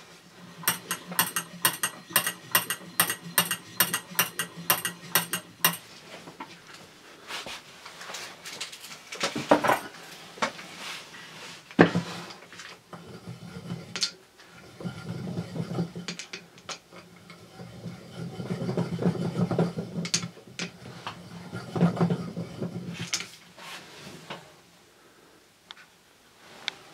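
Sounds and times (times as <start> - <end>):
wooden crank mechanism rattling: 0.4 - 5.9.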